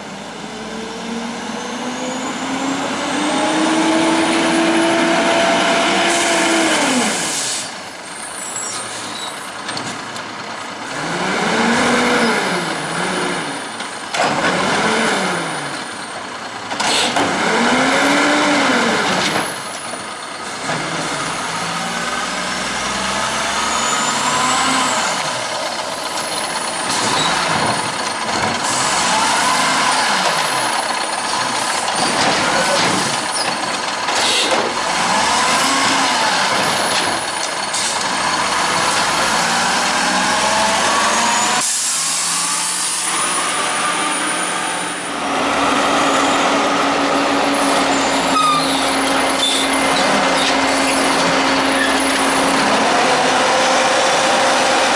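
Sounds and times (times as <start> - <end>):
garbage truck diesel engine revving: 0.2 - 7.8, 10.4 - 54.9
air brake hisses: 7.1 - 7.8, 41.6 - 43.0.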